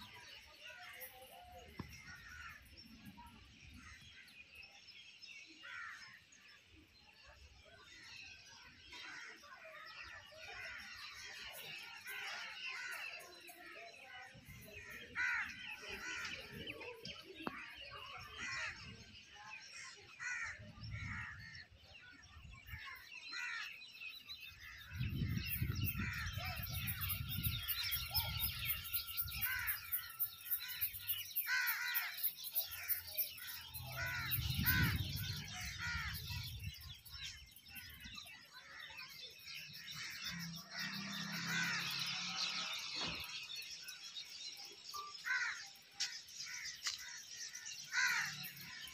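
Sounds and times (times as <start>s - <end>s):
birds calling and chirping: 0.0s - 48.9s
wind rumbling on microphone: 20.6s - 21.6s, 24.7s - 29.7s, 33.8s - 38.1s.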